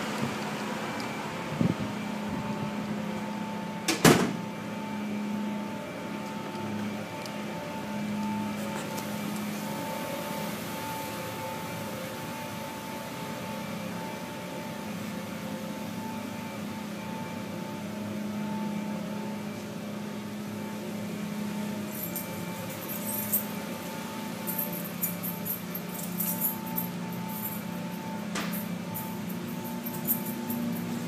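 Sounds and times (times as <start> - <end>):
machinery hum: 0.0 - 31.0
higher steady tone: 0.5 - 31.0
low steady tone: 0.9 - 31.0
metallic clinks and jingles: 21.9 - 23.6, 24.4 - 31.0.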